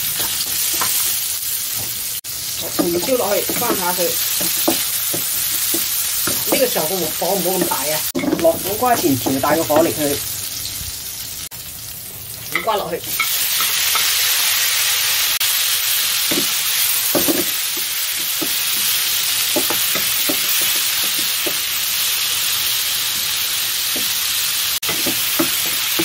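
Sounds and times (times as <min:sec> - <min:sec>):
vegetables sizzling in hot oil: 0:00.0 - 0:26.0
wooden spatula knocking and scraping: 0:02.6 - 0:10.0, 0:16.3 - 0:21.6, 0:24.8 - 0:26.0.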